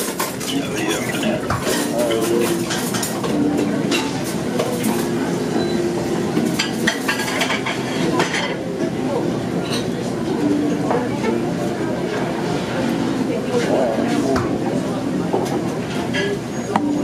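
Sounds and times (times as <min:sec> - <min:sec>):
background din: 0:00.2 - 0:02.5
dishes and cutlery clinking: 0:06.4 - 0:08.6.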